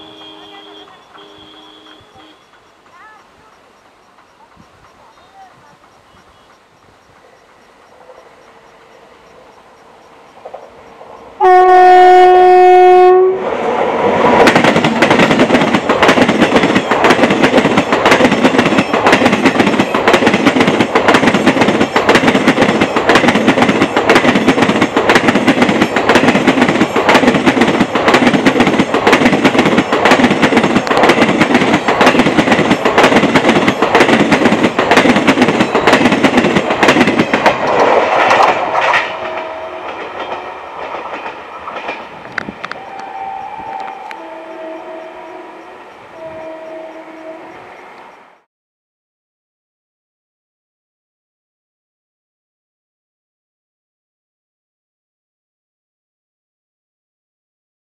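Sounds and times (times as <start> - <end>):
train horn blast: 0.0 - 2.6, 11.4 - 13.7, 38.8 - 40.7, 42.7 - 48.0
train wheels clattering over rails: 0.0 - 11.1, 13.7 - 42.8.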